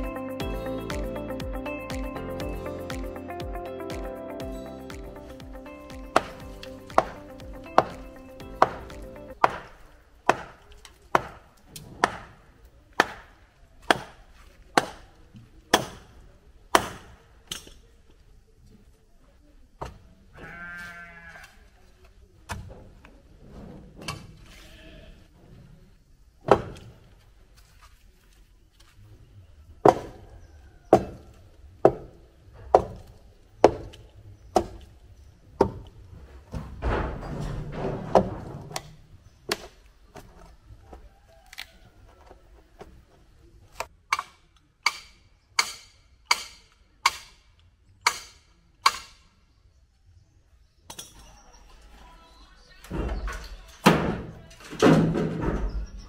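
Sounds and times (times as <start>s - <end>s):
hammer striking timber: 6.0s - 12.4s, 13.0s - 15.1s, 15.7s - 17.7s, 26.4s - 26.8s, 30.9s - 31.2s, 31.8s - 34.0s, 44.1s - 47.4s, 48.0s - 49.2s, 53.8s - 55.6s
bleat: 20.3s - 21.7s, 24.5s - 25.3s.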